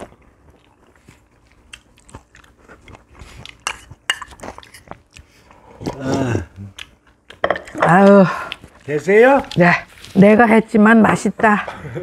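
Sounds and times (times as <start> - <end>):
chewing: 0.0 - 7.4.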